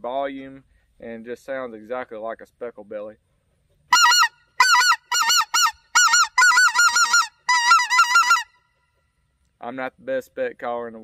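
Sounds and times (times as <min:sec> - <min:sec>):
goose call yodeling notes: 0:03.9 - 0:08.8.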